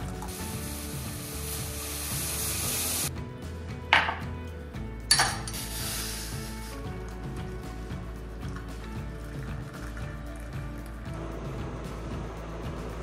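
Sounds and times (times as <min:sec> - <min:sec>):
background music: 0:00.0 - 0:13.0
hiss: 0:00.3 - 0:03.1, 0:05.5 - 0:06.9.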